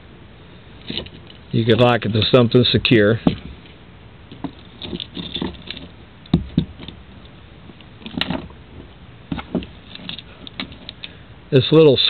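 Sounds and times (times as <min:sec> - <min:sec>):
metal handcuffs and chain clinking: 0:04.3 - 0:05.9.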